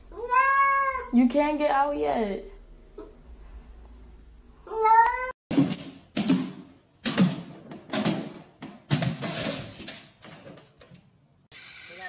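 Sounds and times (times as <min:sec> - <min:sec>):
cat meowing: 0:00.1 - 0:01.1.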